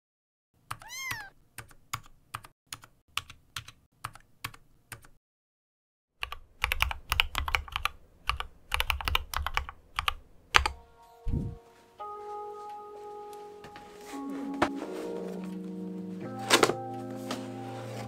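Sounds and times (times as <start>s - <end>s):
mechanical keyboard keystrokes: 6.2s - 10.8s.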